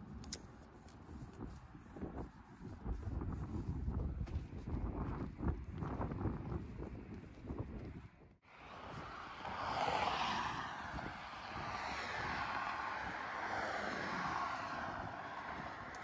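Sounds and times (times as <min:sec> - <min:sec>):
cars passing on road: 0:08.4 - 0:16.0.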